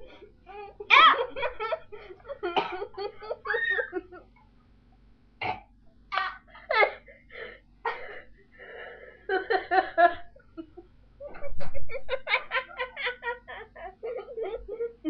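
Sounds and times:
woman laughing: 0.0s - 4.3s, 9.2s - 15.0s
woman coughing and spluttering: 0.9s - 1.4s, 2.6s - 2.9s.

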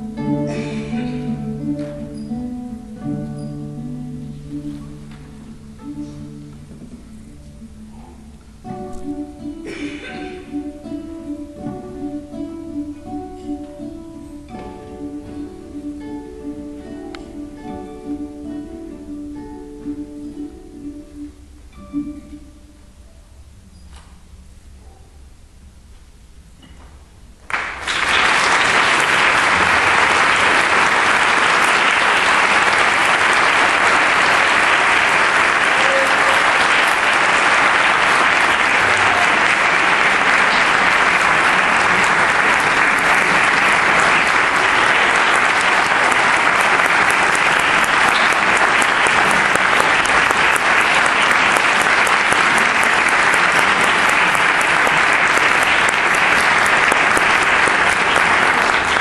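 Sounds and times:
audience applause: 27.5s - 59.0s.

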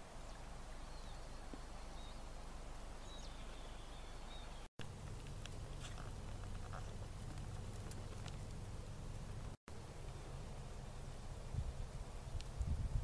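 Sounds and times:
low steady hum: 0.0s - 13.0s
faint high bird calls: 0.3s - 4.7s.

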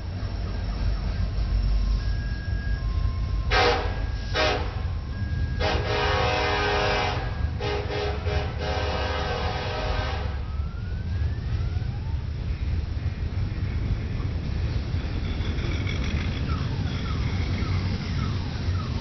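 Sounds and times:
train wheels rumbling: 0.0s - 19.0s
locomotive air horn blasts: 3.5s - 10.5s.

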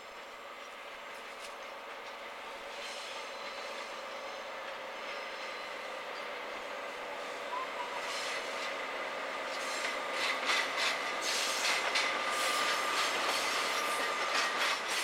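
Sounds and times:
wheels clacking over rail joints: 9.4s - 15.0s.

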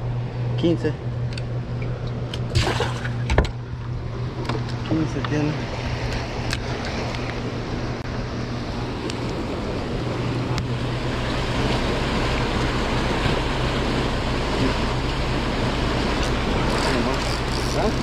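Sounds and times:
steady low hum: 0.0s - 18.0s
turbulent water rushing: 8.4s - 18.0s.

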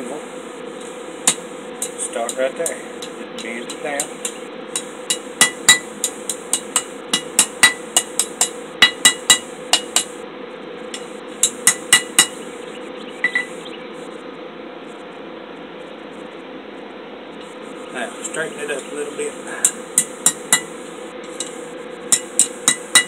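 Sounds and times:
hammer striking steel on anvil: 1.2s - 10.2s, 11.0s - 12.4s, 19.6s - 20.7s, 21.4s - 23.0s.

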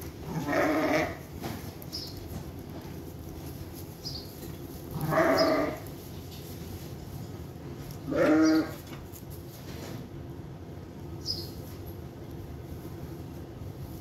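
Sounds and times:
lamb bleating: 0.2s - 1.3s, 4.9s - 5.9s, 8.0s - 8.8s.

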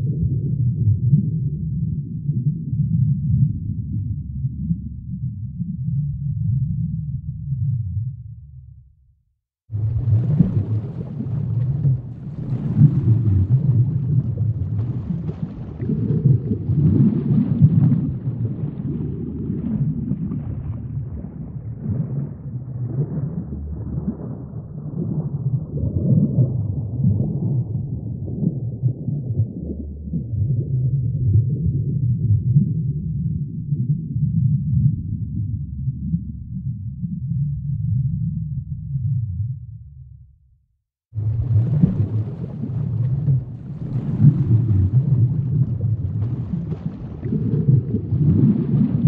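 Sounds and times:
deep rumbling ambient drone: 0.0s - 9.0s, 18.4s - 40.6s.

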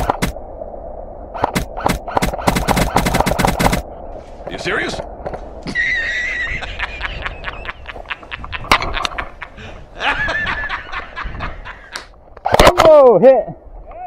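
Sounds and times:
man laughing hysterically: 5.6s - 12.1s.

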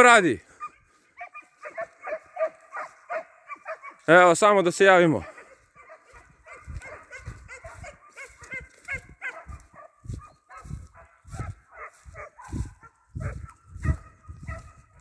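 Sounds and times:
hounds baying: 0.4s - 15.0s
wind buffeting microphone: 6.1s - 15.0s.

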